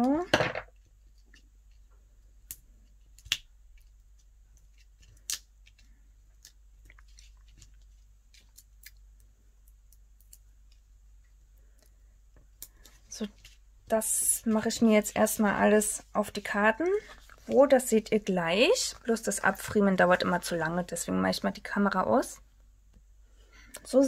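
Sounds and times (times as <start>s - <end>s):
paper and foam pads rustling: 12.8s - 20.2s.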